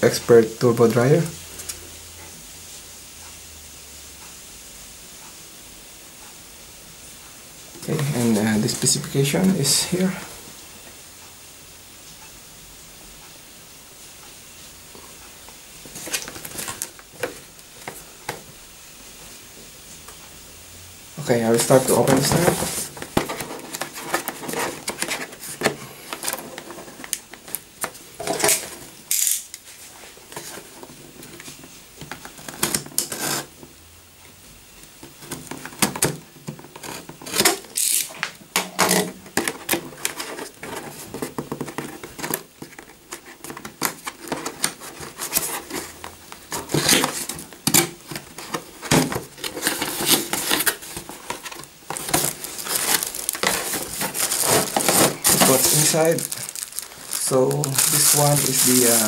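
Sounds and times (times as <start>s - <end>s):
cardboard box rustling: 15.9s - 18.0s, 21.2s - 28.9s, 38.9s - 59.0s.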